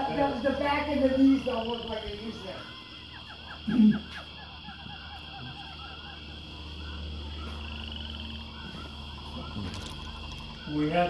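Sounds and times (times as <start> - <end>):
low hum: 0.0 - 11.0.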